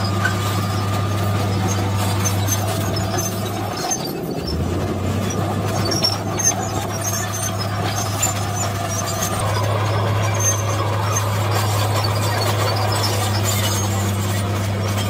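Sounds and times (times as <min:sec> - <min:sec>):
bulldozer diesel engine: 0:00.0 - 0:15.0
steel tracks squeaking and clanking: 0:00.0 - 0:15.0.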